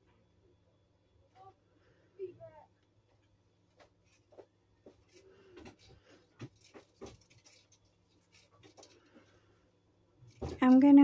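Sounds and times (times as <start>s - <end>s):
low steady hum: 0.0s - 11.0s
wire ticks and rustles: 3.1s - 9.4s.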